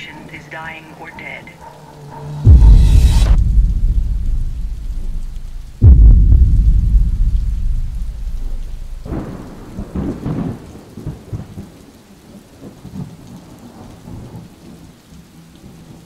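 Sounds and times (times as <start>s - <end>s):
steady rain: 0.0s - 16.0s
thunder clap rolling: 2.4s - 11.7s.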